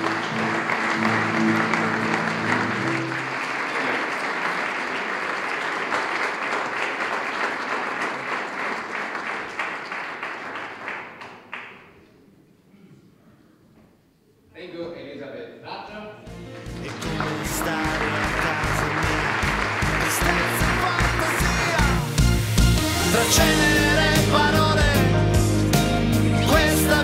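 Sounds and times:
audience applauding: 0:00.0 - 0:12.2, 0:16.3 - 0:25.0.

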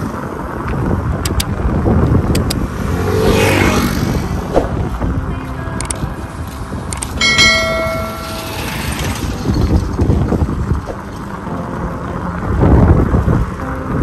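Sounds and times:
wind on microphone: 0:00.0 - 0:14.0
bell ringing: 0:07.2 - 0:09.3.

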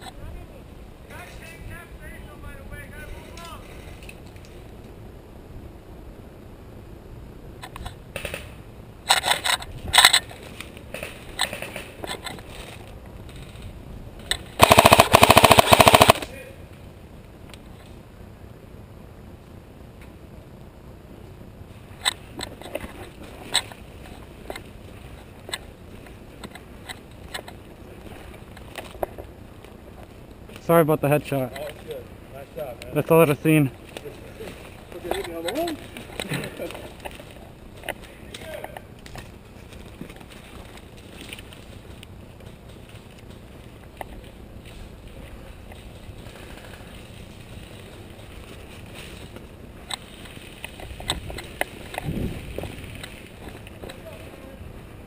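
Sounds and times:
low steady rumble: 0:00.0 - 0:55.0
sharp cracks: 0:13.2 - 0:16.5
footsteps crunching dry leaves: 0:39.3 - 0:51.0.

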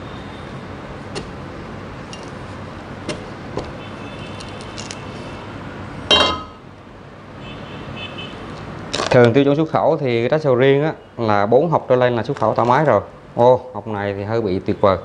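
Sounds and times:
machete clanking on table: 0:06.1 - 0:06.6.

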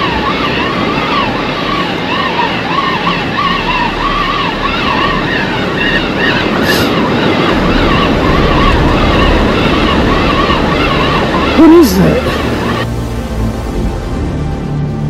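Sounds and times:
background music wavering melody: 0:00.0 - 0:15.0
surf rushing: 0:00.0 - 0:15.0
wind noise: 0:04.1 - 0:13.9.

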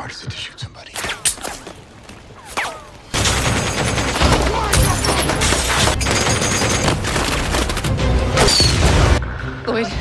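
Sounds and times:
machine gun firing: 0:03.1 - 0:08.0.

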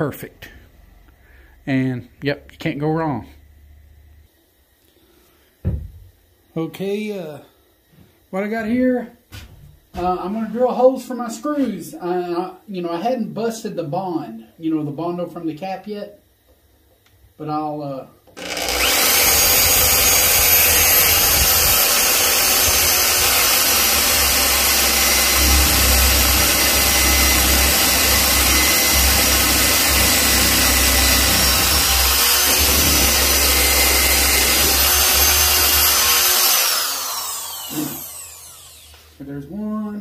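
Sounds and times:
electric drill running: 0:18.4 - 0:39.2.

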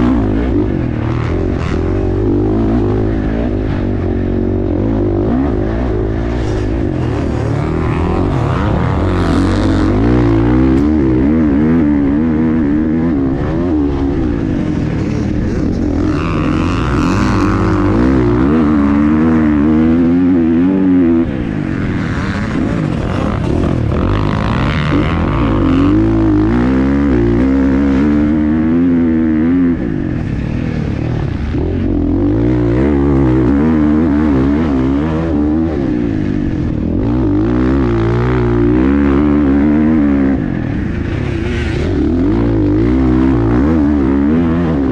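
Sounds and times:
dirt bike engine revving: 0:00.0 - 0:44.9.

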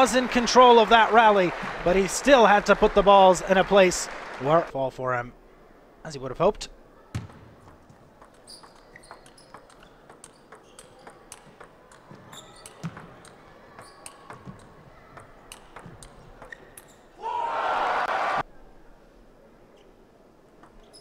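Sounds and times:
table tennis ball clicking: 0:07.6 - 0:16.9.

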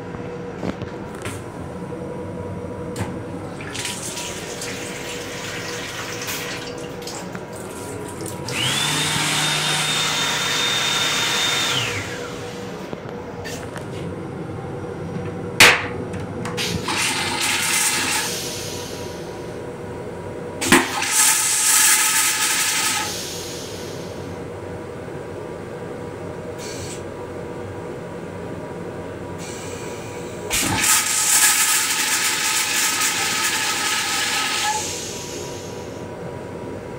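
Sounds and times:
train hum: 0:00.0 - 0:06.6, 0:11.5 - 0:21.0
toilet flush click: 0:03.0 - 0:07.4, 0:20.6 - 0:23.2, 0:30.5 - 0:35.2
toilet flushing: 0:03.2 - 0:12.9, 0:16.5 - 0:19.6, 0:20.6 - 0:24.3, 0:29.4 - 0:36.1.

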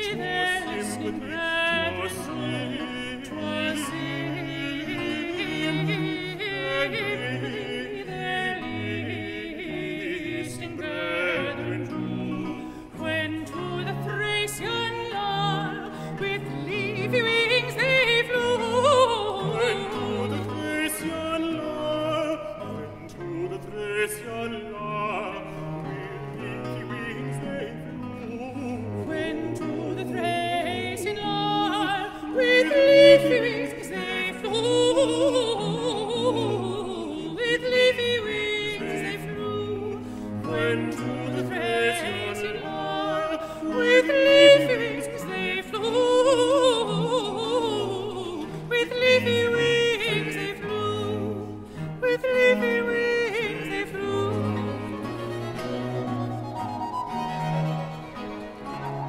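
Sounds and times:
two men singing duet: 0:00.0 - 0:55.7.

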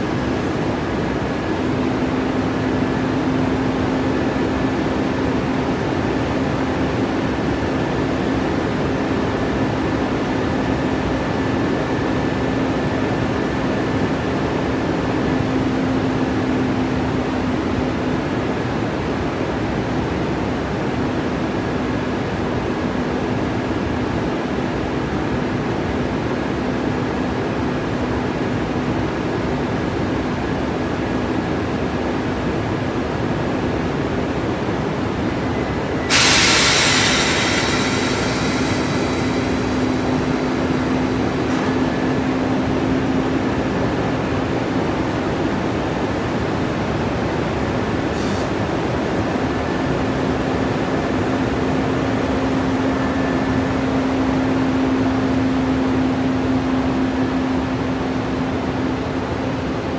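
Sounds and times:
locomotive humming: 0:23.2 - 0:59.9
station noise: 0:35.2 - 0:44.3
loud hiss of air: 0:35.8 - 0:43.1, 0:48.1 - 0:48.8.

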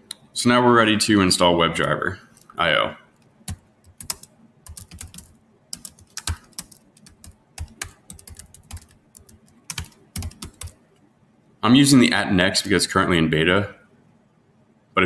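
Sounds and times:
typing on computer keyboard: 0:03.5 - 0:10.8.

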